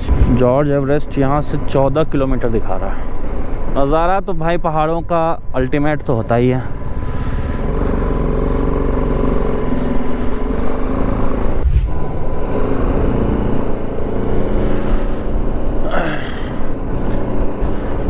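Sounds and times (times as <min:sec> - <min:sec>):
motorcycle engine running: 0:06.2 - 0:18.0
low rumble: 0:11.4 - 0:13.7.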